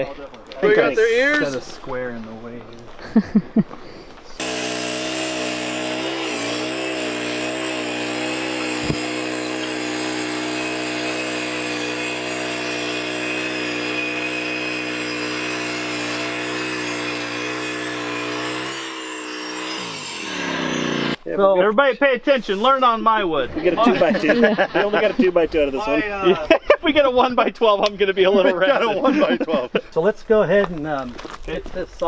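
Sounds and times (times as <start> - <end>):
band sawmill cutting log: 4.4 - 21.2.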